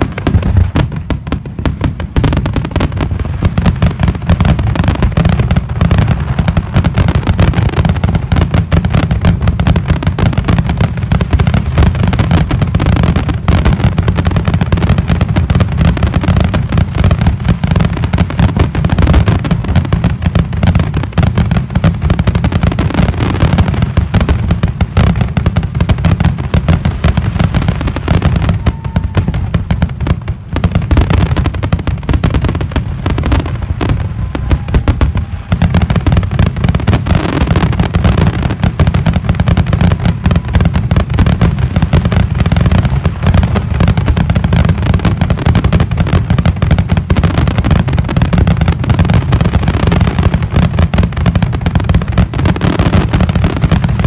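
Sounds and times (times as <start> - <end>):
fireworks bangs and crackles: 0.0 - 54.0.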